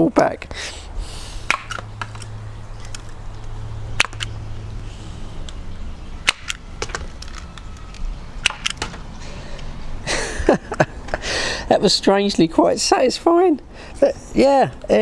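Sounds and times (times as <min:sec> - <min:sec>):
pellets striking tubes: 0:01.5 - 0:02.2
spud gun popping: 0:01.5 - 0:02.2, 0:04.0 - 0:04.3, 0:06.2 - 0:07.1, 0:08.4 - 0:09.0.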